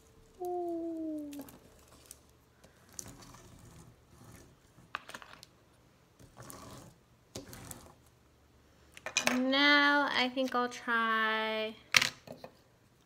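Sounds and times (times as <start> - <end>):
toy plane scraping on paper: 3.0 - 4.5, 6.4 - 8.0.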